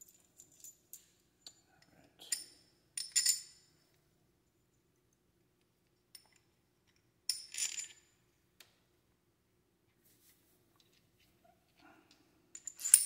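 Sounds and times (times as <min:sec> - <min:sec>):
metal hardware clinking: 0:12.6 - 0:13.0.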